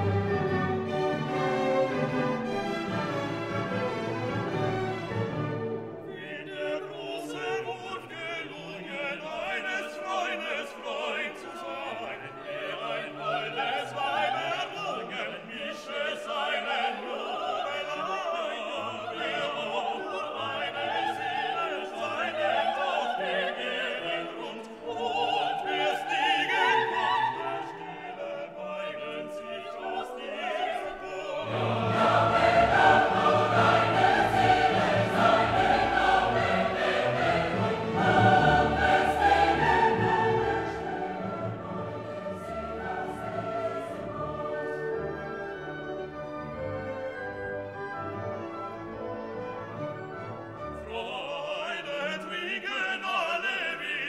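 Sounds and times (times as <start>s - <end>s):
orchestral accompaniment: 0.0s - 15.0s, 15.9s - 52.6s
classical-style singing: 0.0s - 54.0s.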